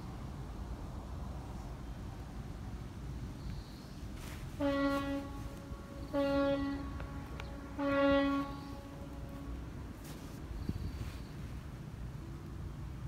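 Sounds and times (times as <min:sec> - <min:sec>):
horn blasts: 0:04.5 - 0:09.8.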